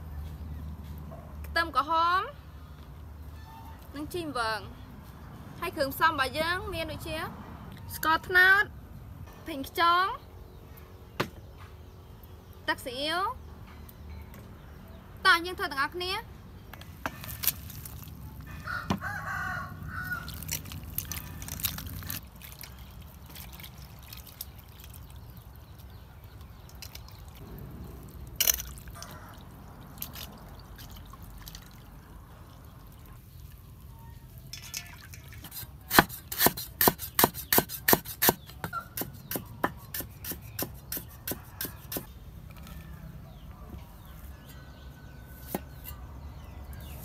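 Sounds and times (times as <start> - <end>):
water dripping and sloshing: 20.3 - 35.5
cleaver chopping on wooden board: 35.9 - 42.1.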